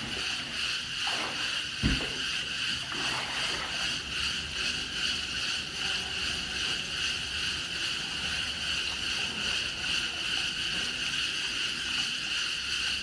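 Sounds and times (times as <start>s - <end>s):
pool water splashing and lapping: 0.0s - 13.0s
steady high hiss: 0.0s - 13.0s
low thump: 1.8s - 2.2s.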